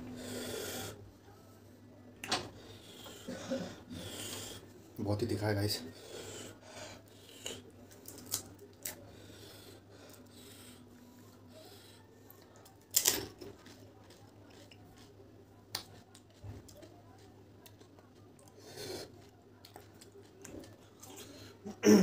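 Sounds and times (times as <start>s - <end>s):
crisp fried shells cracking: 7.9s - 9.0s, 12.7s - 15.1s.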